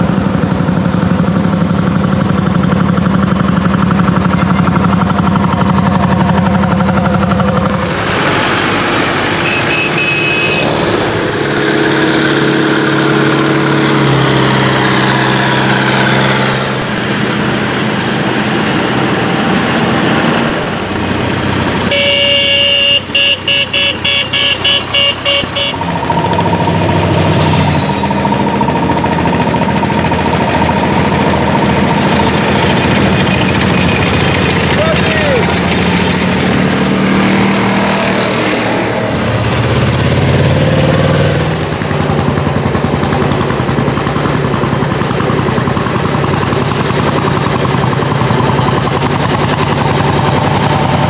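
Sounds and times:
tractor engines running: 0.0s - 51.0s
horn tooting: 9.1s - 11.1s, 21.8s - 28.6s.

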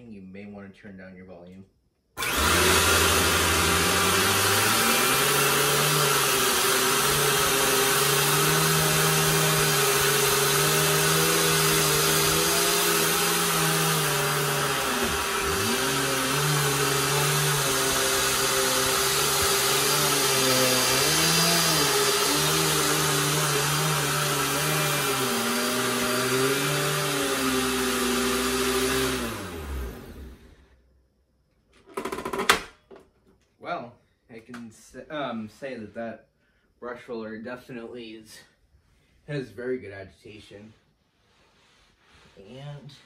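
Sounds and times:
vacuum cleaner running on carpet: 2.2s - 30.5s.

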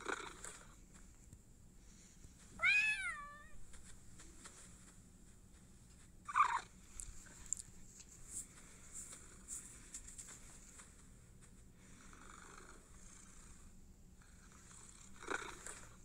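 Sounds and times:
cat meowing: 2.6s - 3.6s.

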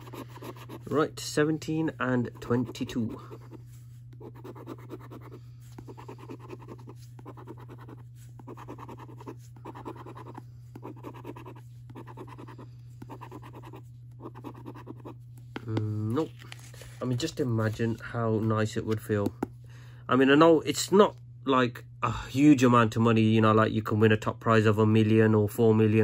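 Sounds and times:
coin scratching scratchcard: 0.0s - 1.0s, 2.3s - 3.5s, 4.2s - 15.2s.

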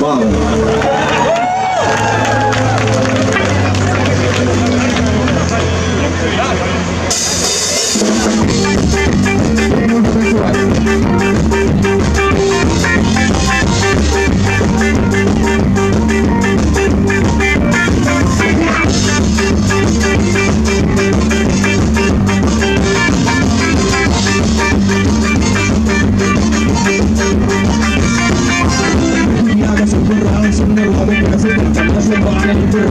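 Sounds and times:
bass guitar: 0.0s - 32.9s
electric guitar: 0.0s - 32.9s
keyboard: 0.0s - 32.9s
drum kit: 6.9s - 32.9s.

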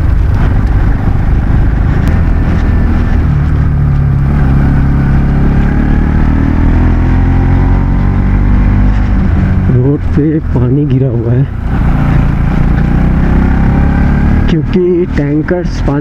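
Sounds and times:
motorbike engine running: 0.0s - 10.8s, 11.4s - 16.0s
wind noise: 0.0s - 14.5s
road rumble: 0.0s - 16.0s.

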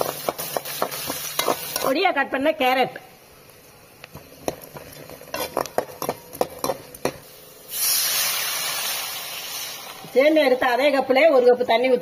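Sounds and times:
metal spatula scraping pan: 0.0s - 2.0s, 5.0s - 6.9s
water sizzling in hot oil: 0.0s - 2.0s, 4.1s - 11.0s.

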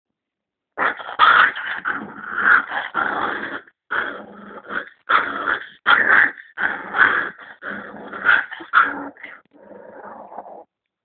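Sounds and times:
puppy growling: 0.8s - 10.7s.

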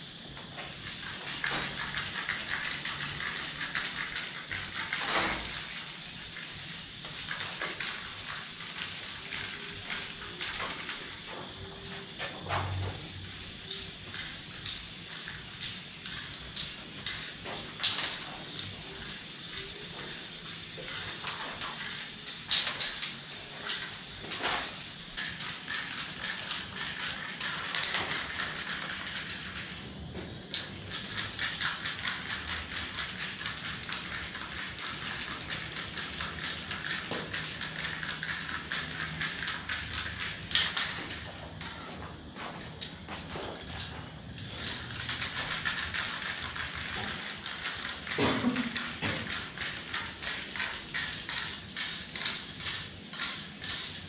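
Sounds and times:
spray paint can hissing: 0.0s - 41.4s, 42.8s - 54.0s
spray can clicks and rattles: 0.4s - 29.8s, 30.5s - 41.8s, 42.5s - 54.0s.

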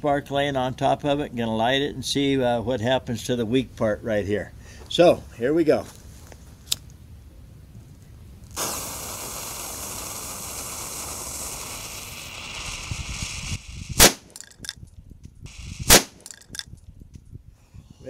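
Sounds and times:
firecracker fuse hissing: 8.5s - 14.6s, 15.5s - 16.6s
firecracker bang: 8.6s - 14.4s, 15.5s - 16.3s.

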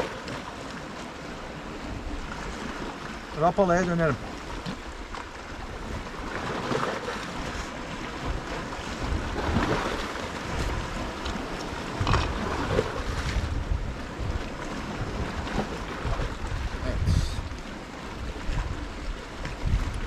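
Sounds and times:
sea waves: 0.0s - 20.0s
wind gusting on microphone: 7.3s - 20.0s.

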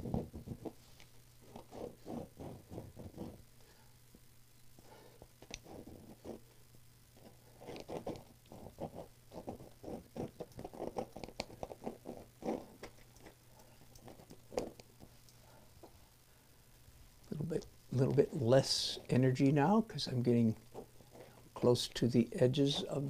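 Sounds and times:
faint steady hum: 0.0s - 23.0s
pencil scratching on canvas: 1.4s - 3.4s, 5.5s - 6.4s, 7.2s - 12.8s.

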